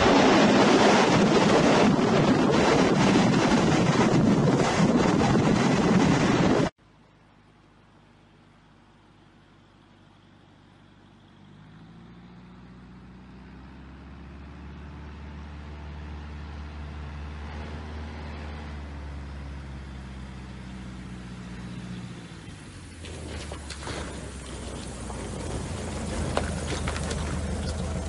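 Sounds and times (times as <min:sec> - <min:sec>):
vehicle engine running: 0:04.3 - 0:28.0.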